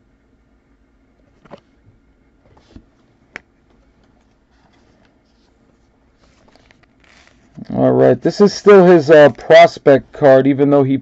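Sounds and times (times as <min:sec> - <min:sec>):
trading cards clicking and rustling: 0:06.2 - 0:07.6.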